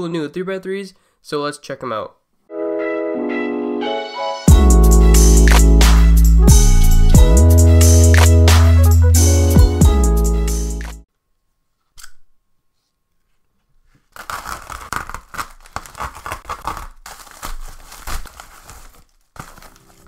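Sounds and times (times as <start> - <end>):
envelope rustle: 13.8 - 20.0
padded envelope ripping and crinkling: 13.8 - 20.0.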